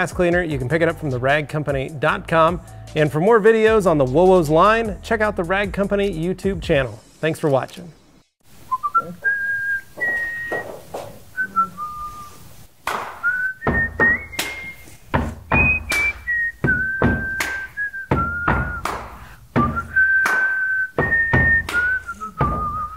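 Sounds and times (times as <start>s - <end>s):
bass beat: 0.0s - 6.9s, 13.6s - 14.4s, 15.1s - 20.2s, 20.9s - 22.9s
whistled melody: 8.7s - 10.7s, 11.4s - 12.4s, 13.2s - 22.9s.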